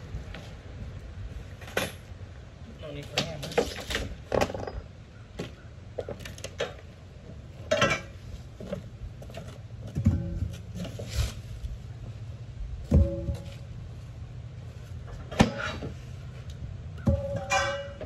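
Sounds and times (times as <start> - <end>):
metal clanks: 7.6 - 8.8, 9.8 - 11.0, 12.9 - 13.9, 15.0 - 18.0.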